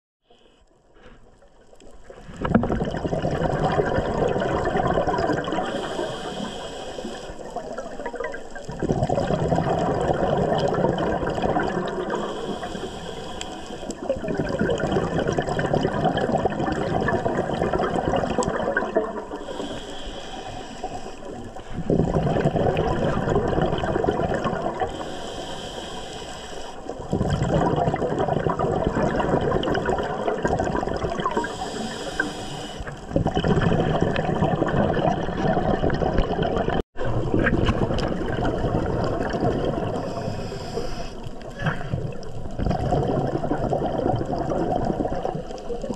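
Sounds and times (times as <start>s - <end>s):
diver exhaling bubbles: 2.2s - 26.1s, 26.8s - 45.9s
regulator hiss: 5.7s - 7.5s, 12.2s - 14.0s, 19.4s - 21.3s, 24.9s - 26.9s, 31.4s - 33.0s.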